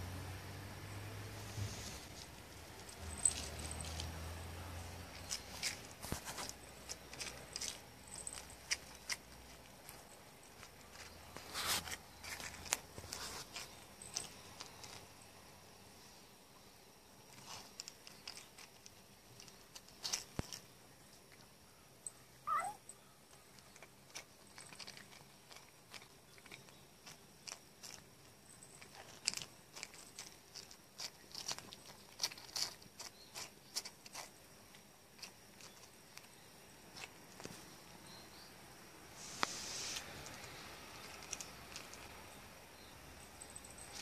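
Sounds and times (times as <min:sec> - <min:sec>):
cat licking and crunching: 0:01.9 - 0:15.2, 0:17.3 - 0:21.4, 0:23.4 - 0:36.3, 0:36.9 - 0:37.5, 0:40.0 - 0:42.6.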